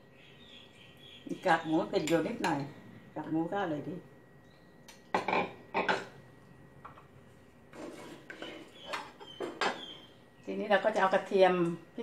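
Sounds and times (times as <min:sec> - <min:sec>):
spatula scraping and tapping wok: 0:07.7 - 0:09.8.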